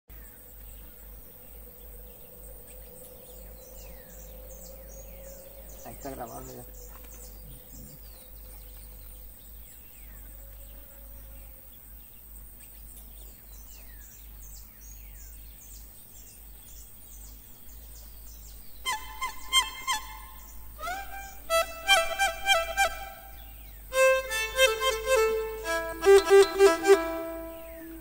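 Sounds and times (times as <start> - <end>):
birds chirping: 0.2 - 28.0
insects buzzing: 0.2 - 28.0
bowed string instrument notes: 18.8 - 28.0.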